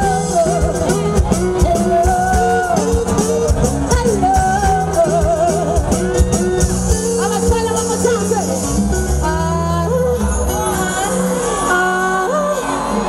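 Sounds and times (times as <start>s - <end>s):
woman singing with vibrato: 0.0s - 8.6s, 9.2s - 13.0s
live band playing: 0.0s - 13.0s.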